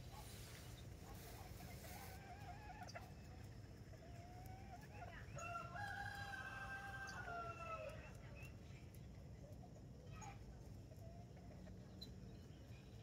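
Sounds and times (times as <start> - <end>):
rooster crowing: 5.4 - 7.9.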